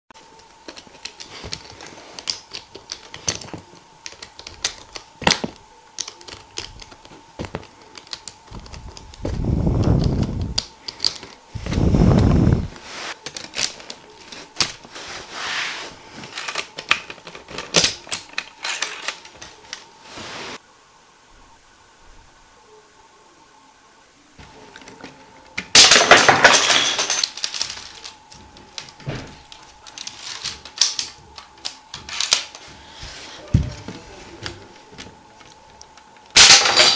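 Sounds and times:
plastic parts clicking: 0:00.4 - 0:11.8, 0:13.2 - 0:14.9, 0:16.2 - 0:19.9
plastic parts scraping: 0:00.5 - 0:20.6, 0:24.7 - 0:35.2.

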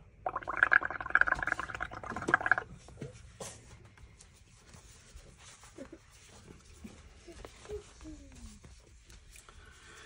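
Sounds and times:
bubbling through a straw: 0:00.0 - 0:02.8.

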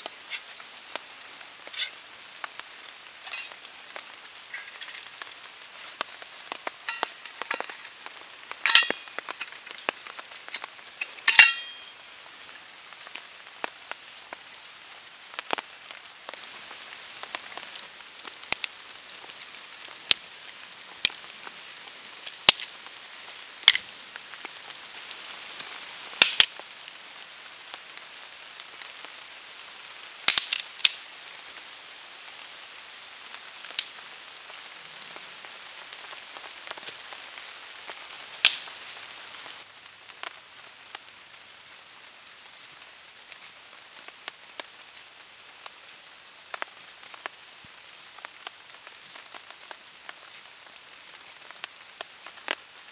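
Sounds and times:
steady rain: 0:00.0 - 0:52.9
metal camp pots clinking: 0:00.1 - 0:02.0, 0:03.2 - 0:03.7, 0:04.4 - 0:12.6.

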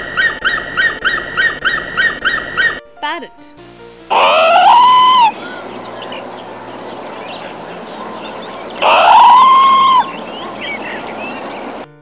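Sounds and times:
macaw squawking: 0:00.0 - 0:02.8, 0:04.1 - 0:11.8
steady hiss: 0:03.6 - 0:11.8.

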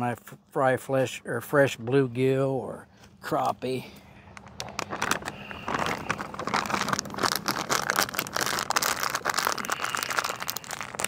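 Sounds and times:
plastic bag crinkling: 0:04.4 - 0:11.0.

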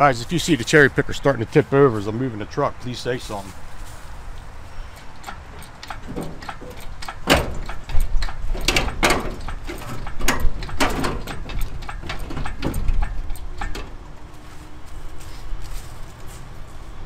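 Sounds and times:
engine hoist pumping creaks and clanks: 0:04.7 - 0:14.4.

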